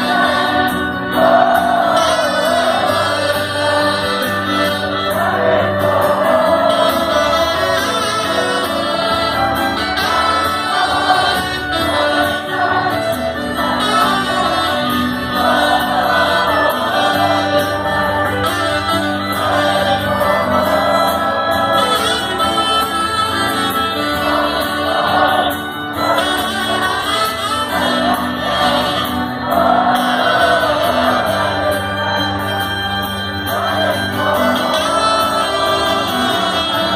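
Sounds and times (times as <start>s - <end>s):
crowd singing along: 0.0s - 36.9s
folk-rock band playing: 0.0s - 36.9s.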